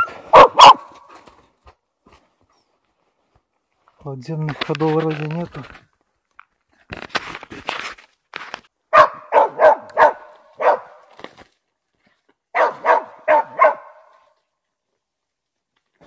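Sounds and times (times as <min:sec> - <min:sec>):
dog barking: 0:00.0 - 0:01.0, 0:08.9 - 0:11.0, 0:12.5 - 0:14.2.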